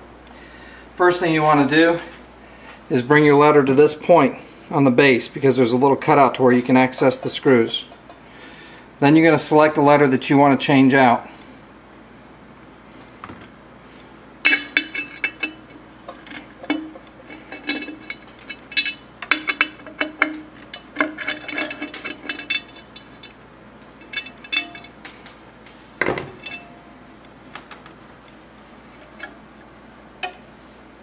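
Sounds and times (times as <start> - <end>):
sharp metallic clicks and clinks: 14.5 - 23.4, 24.0 - 25.0.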